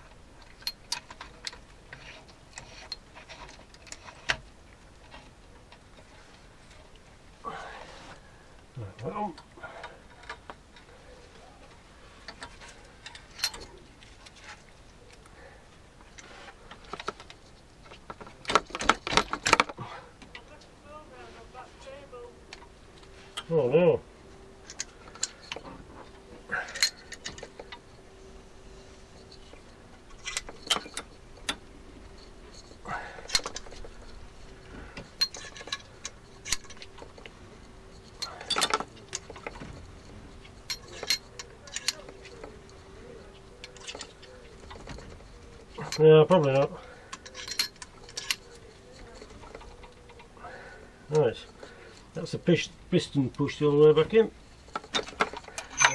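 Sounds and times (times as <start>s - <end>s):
small metallic clicks and clinks: 0.0s - 6.1s, 12.2s - 15.3s, 24.6s - 55.9s.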